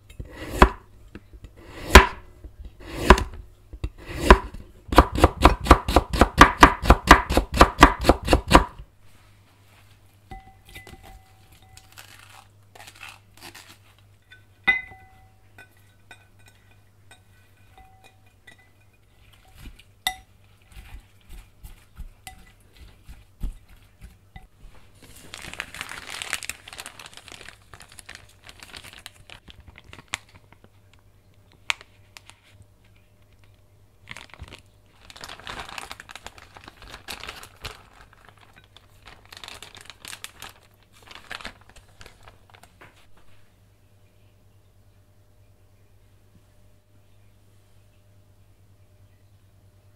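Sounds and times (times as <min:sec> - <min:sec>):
knife chopping on wooden board: 0:04.1 - 0:08.8
chopsticks clinking on glass bowl: 0:10.3 - 0:12.1, 0:14.2 - 0:20.4, 0:22.3 - 0:22.9
plastic bag crinkling: 0:11.3 - 0:14.0, 0:24.8 - 0:32.6, 0:33.2 - 0:43.1.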